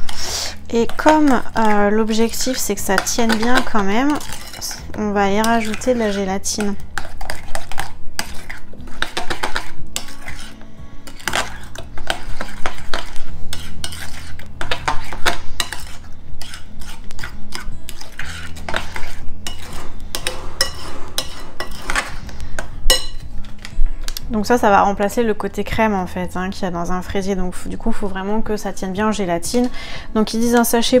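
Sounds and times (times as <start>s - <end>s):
metal spoon scraping glass bowl: 0.0s - 23.7s.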